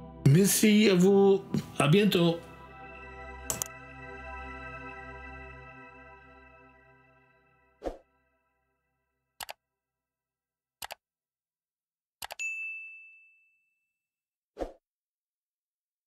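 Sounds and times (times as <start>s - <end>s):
outro music: 0.0s - 8.6s
sharp clicks: 3.5s - 3.7s, 10.8s - 11.0s, 12.2s - 12.4s
high bell-like ding: 12.4s - 13.9s.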